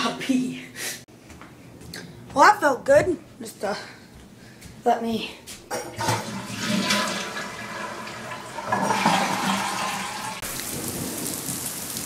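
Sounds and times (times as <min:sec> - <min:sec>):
toilet flushing: 0:05.8 - 0:10.6.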